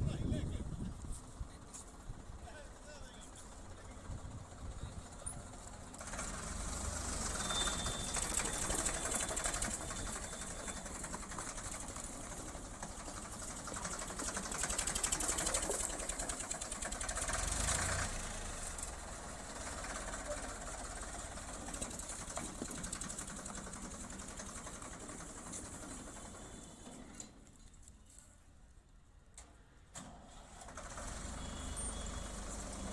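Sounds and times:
tractor diesel engine clatter: 0.3 - 27.4, 30.0 - 32.9.

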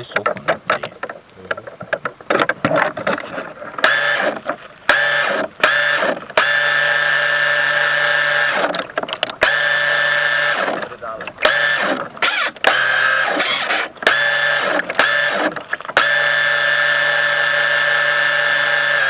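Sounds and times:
clicks and handling knocks: 0.0 - 5.6, 8.7 - 9.5
small boat motor whine: 3.7 - 19.0.

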